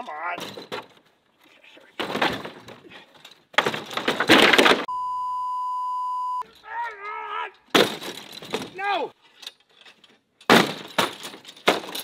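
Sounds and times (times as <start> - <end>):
censor bleep: 4.9 - 6.4.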